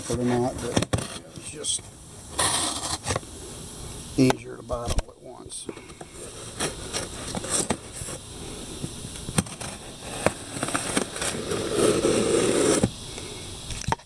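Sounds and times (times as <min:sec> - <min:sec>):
cardboard crackling and scraping: 0:02.3 - 0:03.2, 0:06.1 - 0:08.3, 0:09.3 - 0:12.9.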